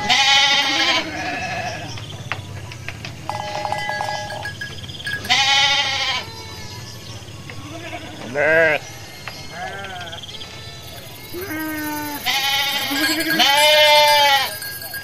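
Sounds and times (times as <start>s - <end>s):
sheep bleating: 0.0s - 2.0s, 3.2s - 6.7s, 7.5s - 8.9s, 9.5s - 10.2s, 10.8s - 15.0s.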